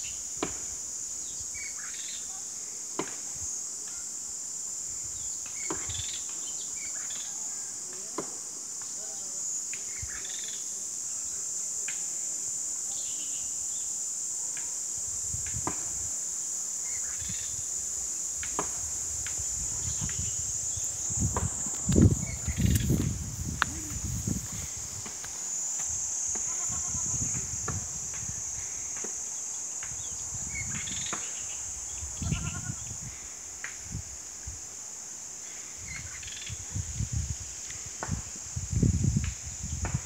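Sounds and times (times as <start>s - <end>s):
insects droning: 0.0s - 40.0s
low rumbles on microphone: 18.8s - 25.1s.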